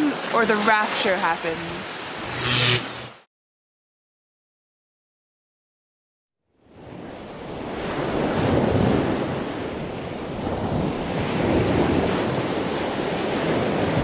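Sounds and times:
waves washing onto shore: 6.6s - 14.0s
wind buffeting microphone: 6.8s - 14.0s.

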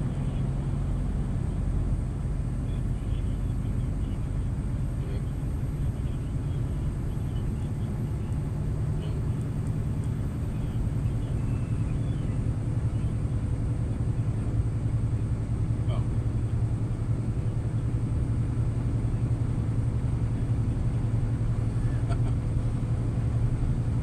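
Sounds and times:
truck engine rumble: 0.0s - 24.0s
tyre road noise: 0.0s - 24.0s.

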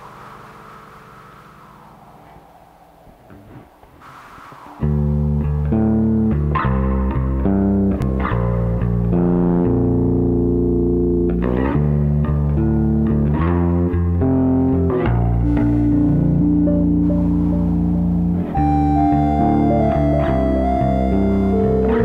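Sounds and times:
ambient music with sustained chords: 0.0s - 3.1s, 14.2s - 22.0s.

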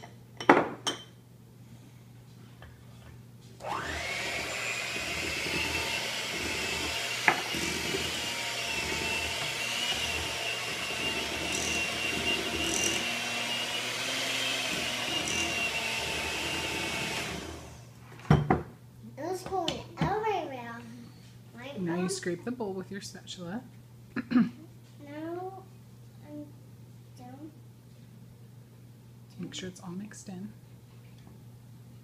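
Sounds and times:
electric hand mixer whine: 3.6s - 17.9s.

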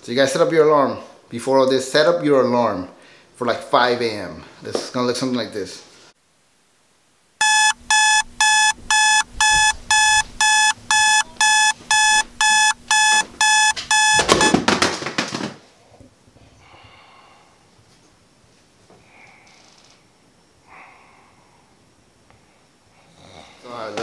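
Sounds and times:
digital alarm clock beeping: 7.4s - 14.6s.

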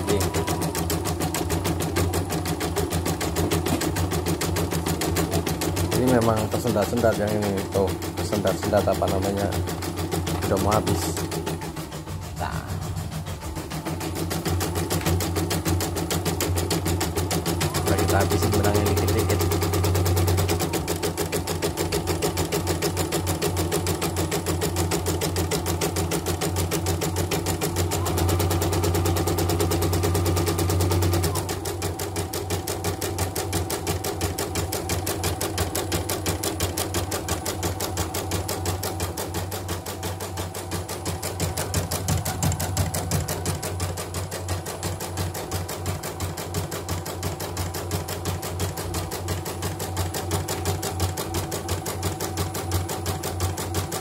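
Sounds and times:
embroidery machine stitching: 0.0s - 54.0s
low hum: 11.1s - 14.8s.

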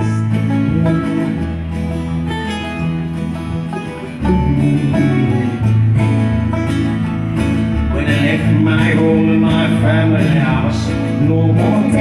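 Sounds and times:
acoustic guitars strumming: 0.0s - 12.0s
banjo picking: 0.0s - 12.0s.

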